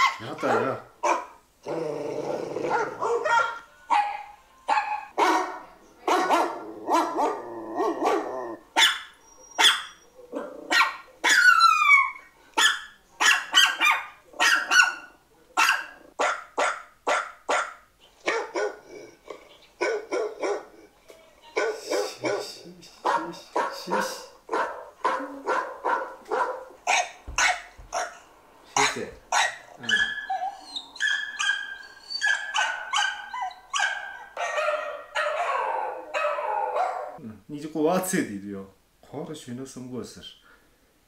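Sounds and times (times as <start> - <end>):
dog barking: 0.0 - 1.4, 2.7 - 18.9, 19.8 - 20.8, 21.5 - 37.2
dog growling: 1.6 - 3.2, 6.5 - 8.7, 10.2 - 10.7, 18.6 - 21.0
dog whining: 6.6 - 12.8, 29.4 - 37.2.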